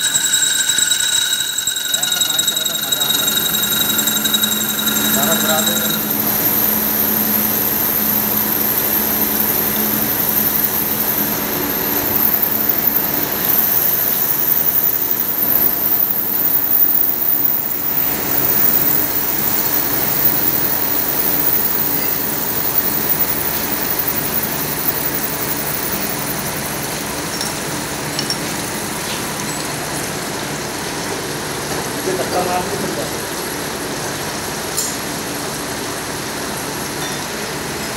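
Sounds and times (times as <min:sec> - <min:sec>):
lathe machine hum: 0:00.0 - 0:14.8.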